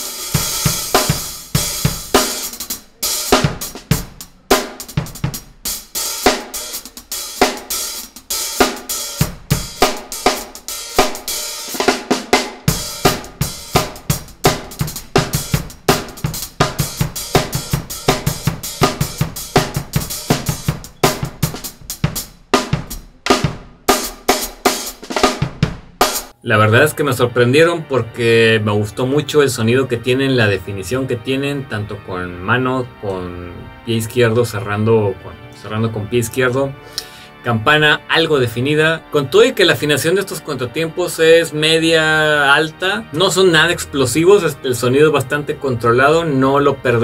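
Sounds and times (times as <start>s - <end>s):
bass drum: 0.0s - 5.6s, 8.6s - 26.3s
hi-hats played with sticks: 0.0s - 26.4s
snare drum: 0.0s - 26.4s.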